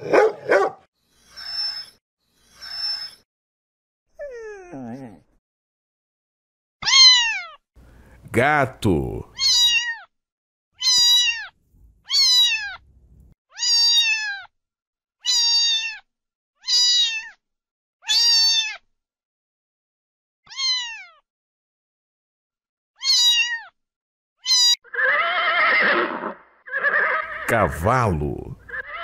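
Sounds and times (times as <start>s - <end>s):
cat meowing: 6.8s - 7.5s, 9.4s - 10.0s, 10.8s - 11.5s, 12.1s - 12.8s, 13.6s - 14.4s, 15.2s - 16.0s, 20.5s - 21.2s
horse whinnying: 24.6s - 27.5s, 28.6s - 29.0s.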